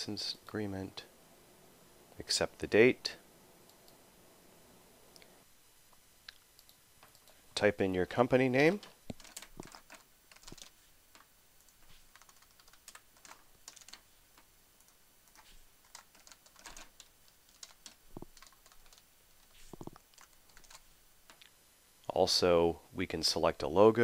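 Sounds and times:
faint keyboard typing: 6.3s - 7.4s, 8.6s - 21.5s.

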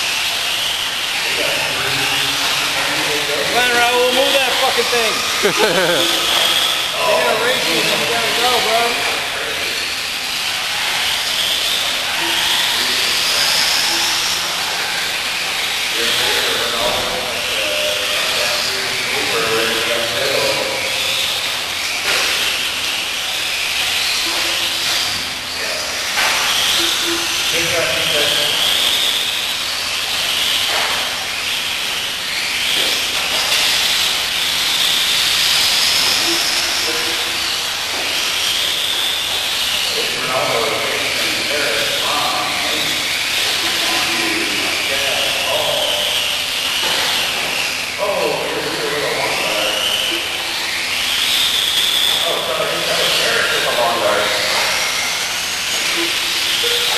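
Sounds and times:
rc car motors whining: 0.0s - 56.9s.

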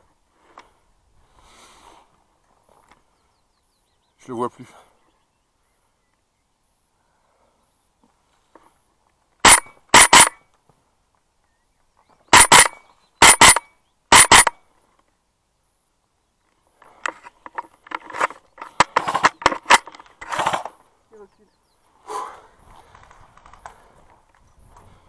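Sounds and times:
airsoft rifle shots: 9.4s - 10.4s, 12.3s - 14.6s, 18.2s - 20.7s
gear clicking and rattling: 9.4s - 10.4s, 12.3s - 14.6s, 16.8s - 20.8s.

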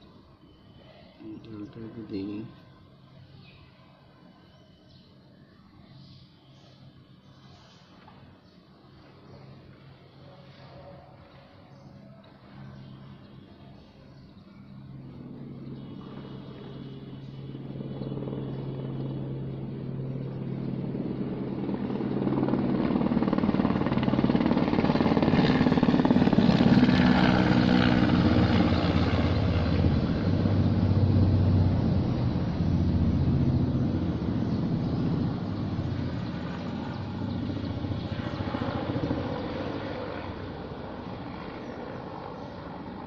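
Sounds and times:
engine rumble with low hum: 28.2s - 38.6s.

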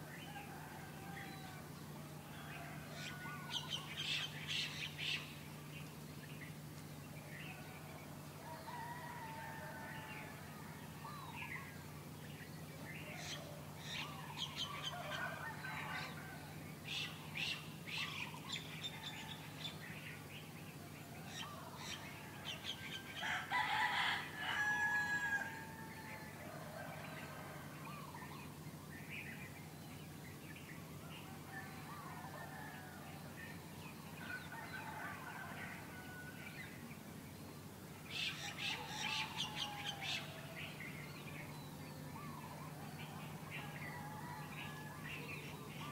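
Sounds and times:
rooster crowing: 0.2s - 3.8s, 7.6s - 11.5s, 13.2s - 16.6s, 21.0s - 28.1s, 31.1s - 36.8s, 38.2s - 41.0s, 42.1s - 45.9s.

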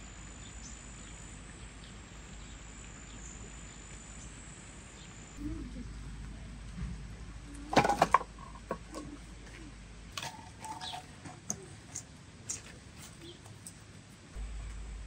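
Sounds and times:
logs clattering onto woodpile: 7.7s - 9.2s, 10.2s - 11.6s.

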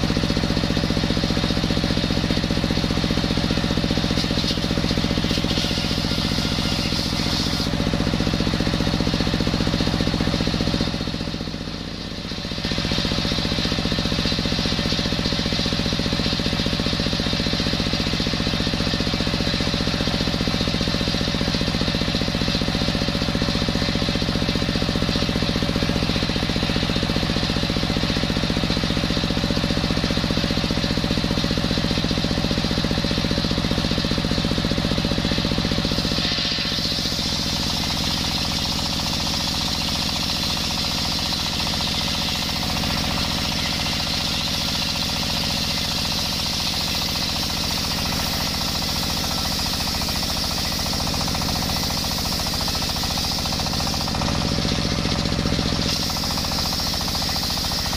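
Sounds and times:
diesel engine running: 0.0s - 57.9s
circular saw blade whining: 3.2s - 8.7s.

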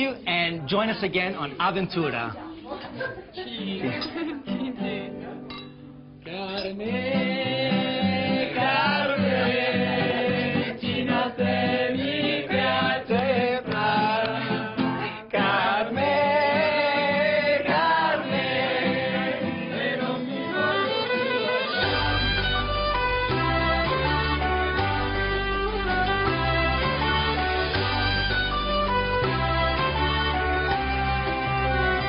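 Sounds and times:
song with singing: 6.2s - 22.7s
deep bass line: 21.8s - 32.0s.

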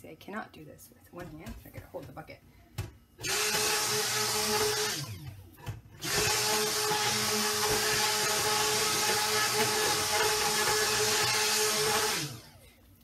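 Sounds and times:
stick blender running: 3.2s - 12.6s.

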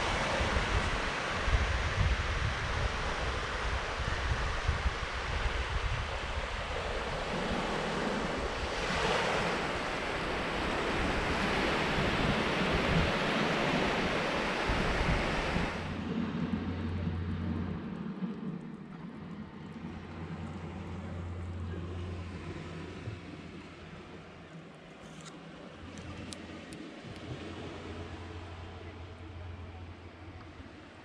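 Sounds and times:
wind on microphone: 0.0s - 24.5s
waves breaking on a beach: 0.0s - 31.0s
muffled low rumble: 14.6s - 31.0s.

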